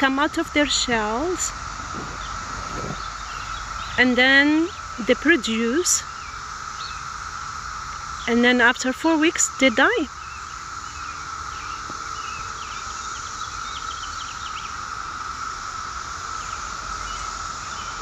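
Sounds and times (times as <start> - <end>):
cicadas droning: 0.0 - 18.0.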